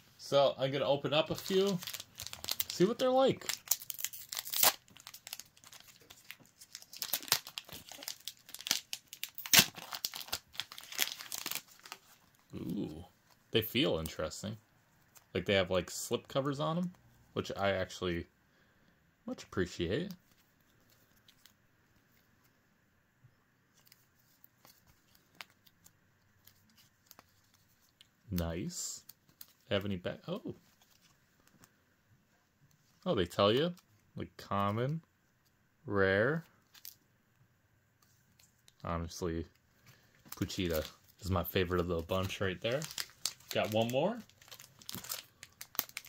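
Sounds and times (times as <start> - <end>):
foil pack crinkling: 1.3 - 12.2, 40.3 - 46.0
foil pack tearing: 1.4 - 12.0, 42.7 - 46.0.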